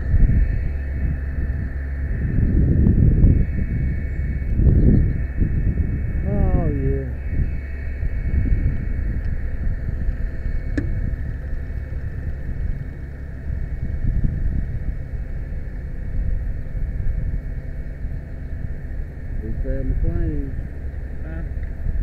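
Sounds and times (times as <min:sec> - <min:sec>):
faint hydraulic whine: 0:00.0 - 0:22.0.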